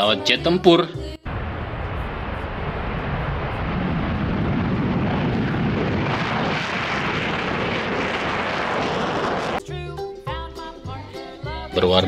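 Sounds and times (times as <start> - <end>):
jet engine roar: 1.3 - 9.6.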